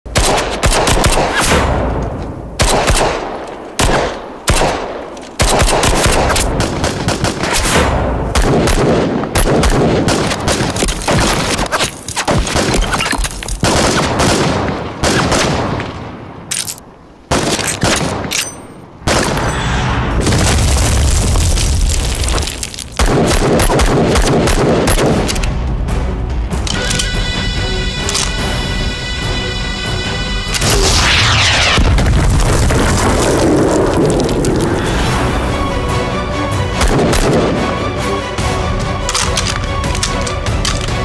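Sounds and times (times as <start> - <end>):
automatic rifle gunfire: 8.4 - 11.6, 23.0 - 25.4.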